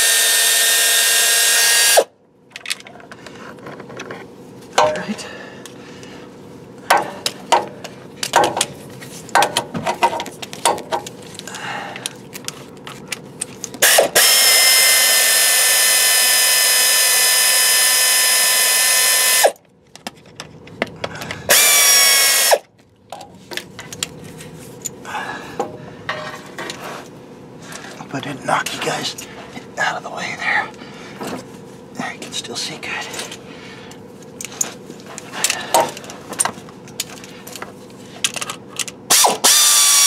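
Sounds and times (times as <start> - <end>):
power ratchet whining: 0.0 - 2.2, 13.6 - 19.6, 21.4 - 22.7, 38.3 - 40.0.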